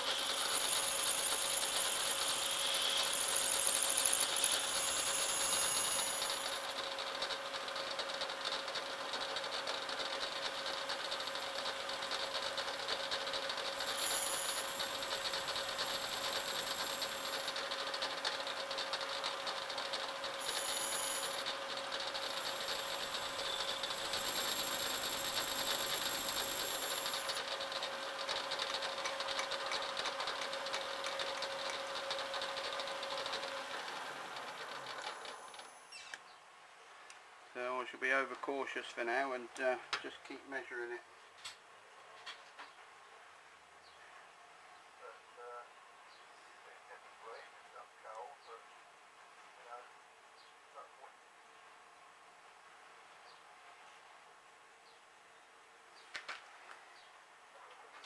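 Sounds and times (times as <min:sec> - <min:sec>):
metal lathe humming: 0:00.0 - 0:35.9.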